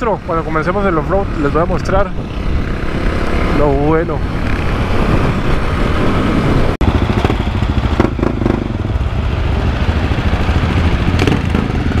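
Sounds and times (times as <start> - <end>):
motorcycle engine running: 6.8 - 12.0
motorcycle engines idling: 6.8 - 12.0.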